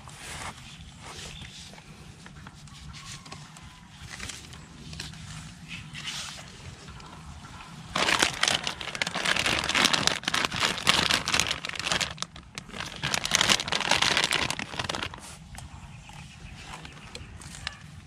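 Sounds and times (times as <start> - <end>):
plastic snack bag crinkling: 7.9 - 15.2.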